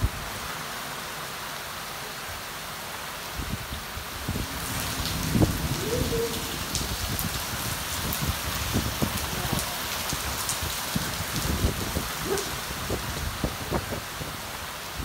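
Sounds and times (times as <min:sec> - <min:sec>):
steady rain hiss: 0:00.0 - 0:15.0
raindrops ticking close by: 0:04.2 - 0:14.4.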